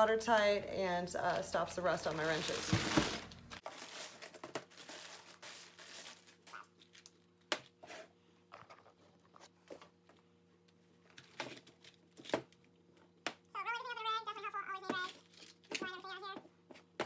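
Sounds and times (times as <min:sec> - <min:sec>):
plastic bag crinkling: 0:01.3 - 0:07.3.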